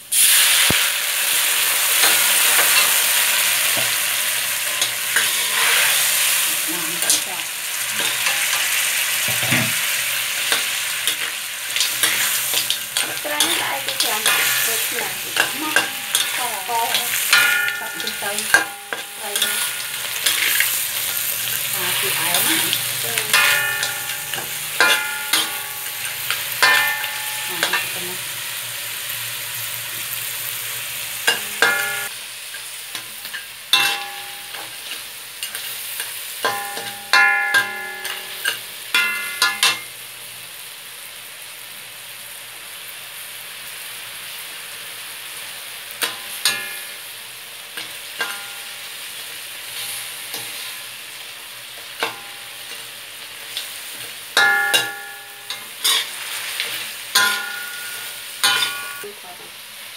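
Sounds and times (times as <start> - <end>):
oil sizzling in a wok: 0.0 - 59.9
metal spatula scraping a wok: 1.8 - 28.6, 49.6 - 50.9, 52.0 - 59.1.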